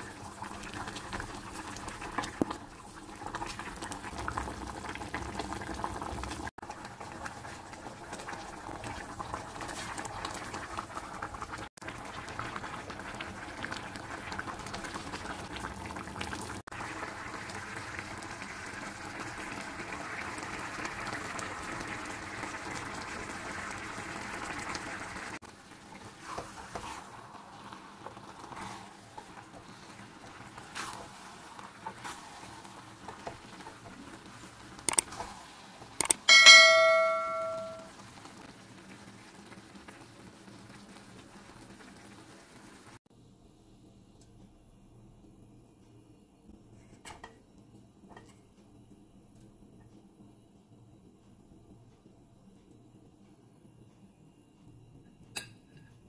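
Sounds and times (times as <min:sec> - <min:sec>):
broth bubbling in a pot: 0:00.0 - 0:56.0
wooden spoon stirring: 0:25.7 - 0:35.6.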